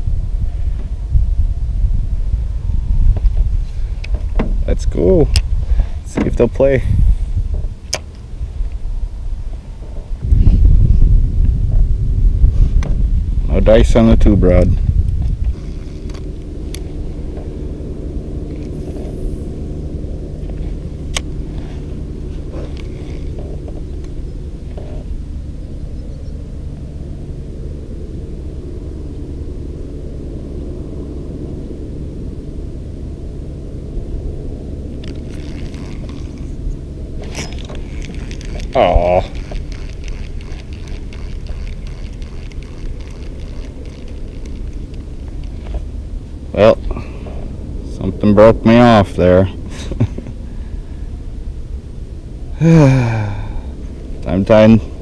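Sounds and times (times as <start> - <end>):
steady low rumble: 0.0 - 55.0
electric trolling motor humming: 13.0 - 55.0
fishing reel ticking: 22.7 - 23.4, 35.0 - 36.6, 37.2 - 45.6.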